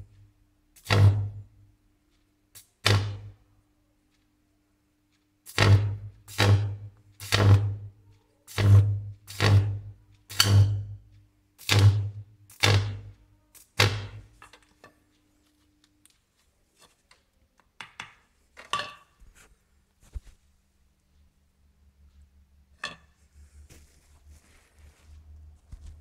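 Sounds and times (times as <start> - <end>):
electric arc buzzing: 5.5 - 7.8, 11.6 - 14.2.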